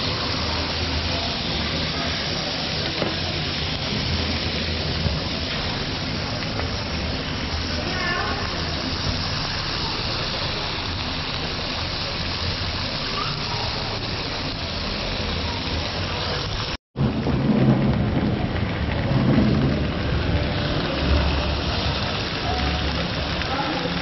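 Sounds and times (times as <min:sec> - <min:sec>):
meat sizzling on a grill: 0:00.0 - 0:16.8, 0:18.6 - 0:24.0.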